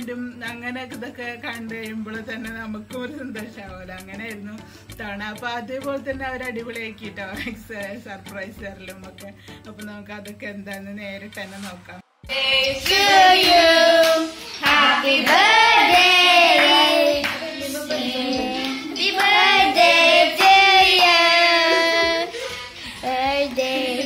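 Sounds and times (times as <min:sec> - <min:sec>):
voices singing: 0:12.2 - 0:24.0
hand claps: 0:12.5 - 0:17.6, 0:18.3 - 0:19.5, 0:20.4 - 0:21.9.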